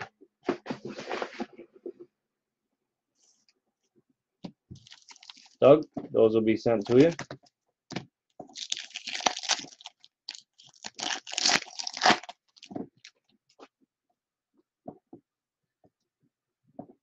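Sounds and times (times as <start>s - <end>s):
foil wrapper tearing and crinkling: 4.8s - 5.6s, 8.5s - 13.1s.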